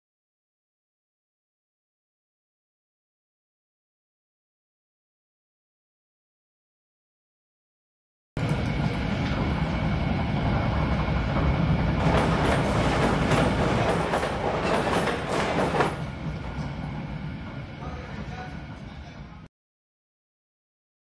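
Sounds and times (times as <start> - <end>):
machinery rattling and clattering: 8.4 - 18.9
machinery low rumble: 8.4 - 19.5.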